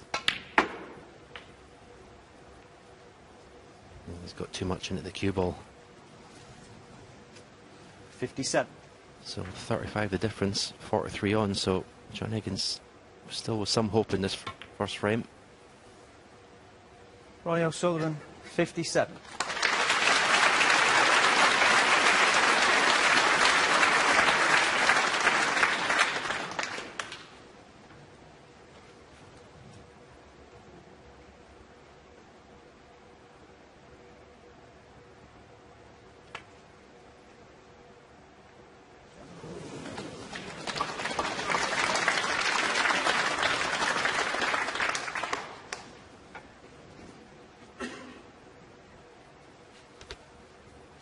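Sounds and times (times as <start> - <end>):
audience applauding: 19.2 - 27.4, 39.4 - 45.9.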